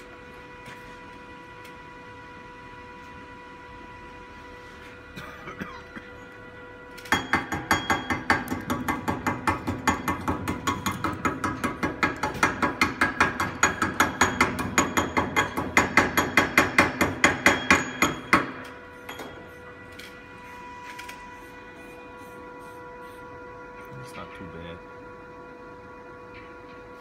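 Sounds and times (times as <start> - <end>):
hammer tapping on metal: 7.1 - 19.3.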